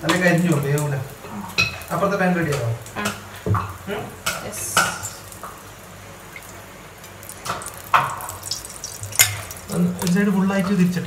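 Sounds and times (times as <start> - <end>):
faint steady hiss: 0.0 - 11.0
utensils clinking on frying pans: 1.5 - 1.9, 7.4 - 10.2
oil dripping onto pan: 1.6 - 10.2.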